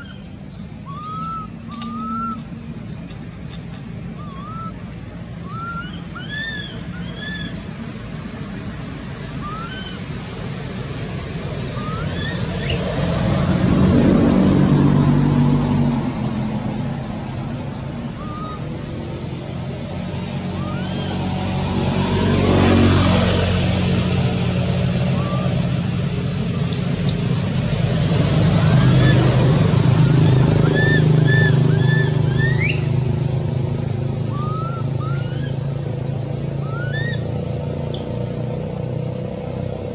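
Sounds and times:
short arched chirping calls: 0:00.0 - 0:02.5, 0:04.2 - 0:08.7, 0:09.3 - 0:10.1, 0:11.7 - 0:13.6, 0:18.0 - 0:19.8, 0:20.4 - 0:21.2, 0:25.1 - 0:25.6, 0:26.6 - 0:27.3, 0:30.0 - 0:33.1, 0:34.3 - 0:35.7, 0:36.4 - 0:38.3
road vehicles passing: 0:00.0 - 0:39.9.

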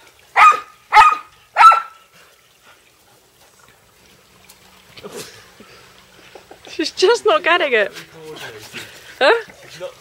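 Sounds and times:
dog barking: 0:00.4 - 0:02.0.

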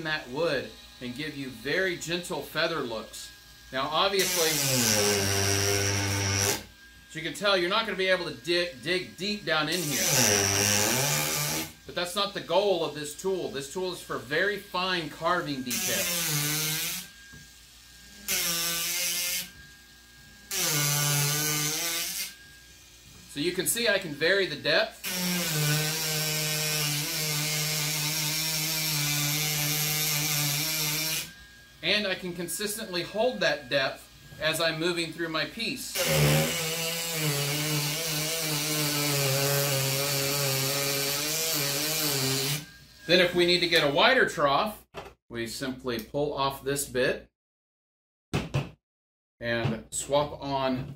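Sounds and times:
power carving tool buzzing: 0:00.0 - 0:35.0, 0:35.9 - 0:43.9
hiss of wood cutting: 0:02.7 - 0:07.2, 0:09.2 - 0:12.2, 0:15.2 - 0:23.6, 0:25.0 - 0:31.6, 0:35.9 - 0:43.2
power carver humming: 0:03.6 - 0:06.8, 0:07.8 - 0:11.9, 0:35.9 - 0:43.2
faint steady whine: 0:42.6 - 0:44.6.

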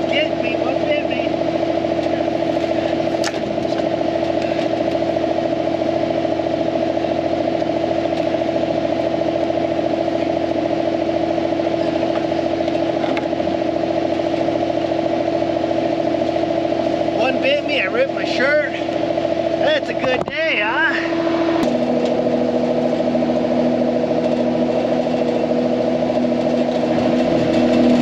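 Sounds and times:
mini loader engine drone: 0:00.0 - 0:28.0.

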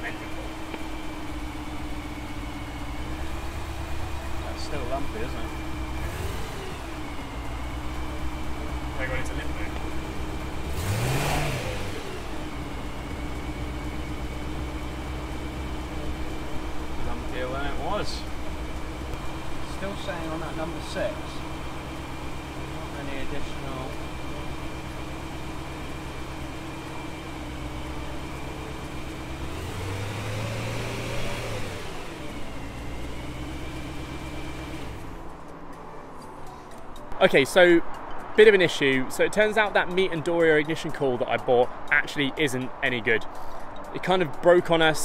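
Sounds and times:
car engine idling lumpily: 0:00.0 - 0:45.0
engine rev blip: 0:09.7 - 0:15.9.

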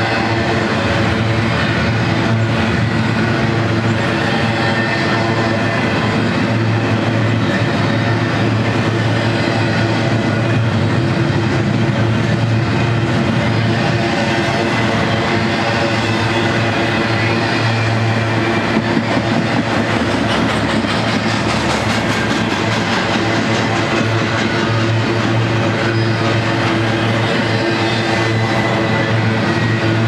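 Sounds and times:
train wheels rumbling on rails: 0:00.0 - 0:30.0.

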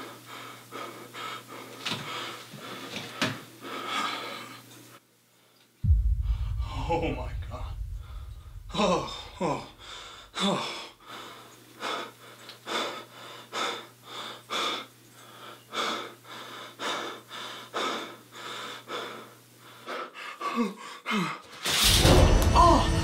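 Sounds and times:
man breathing hard: 0:03.6 - 0:04.6, 0:09.8 - 0:21.4
low steady hum: 0:05.8 - 0:10.5.

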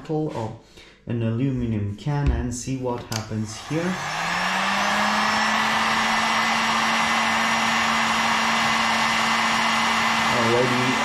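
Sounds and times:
fan motor hum: 0:03.4 - 0:11.0
heat gun blowing air: 0:03.4 - 0:11.0.

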